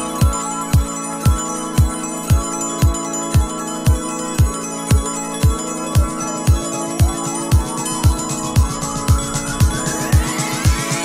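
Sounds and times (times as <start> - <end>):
kick drum beat: 0.2 - 11.0
held music notes: 5.1 - 11.0.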